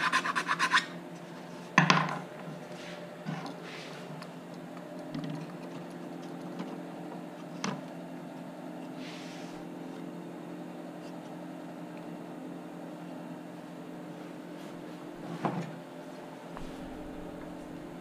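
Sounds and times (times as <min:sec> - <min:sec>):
low room hum: 0:00.0 - 0:18.0
brushing rub: 0:08.9 - 0:09.6.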